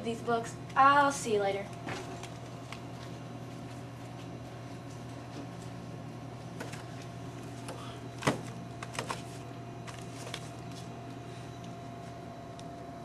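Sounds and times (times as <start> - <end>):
steady electrical hum: 0.0 - 13.0
books knocking together: 7.7 - 10.4.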